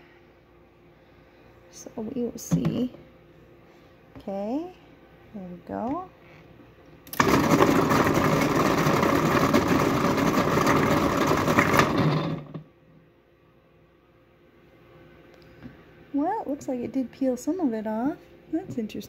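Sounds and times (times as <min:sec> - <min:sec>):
food processor running: 0:07.1 - 0:12.6
ginger chunks clattering in bowl: 0:07.2 - 0:12.5.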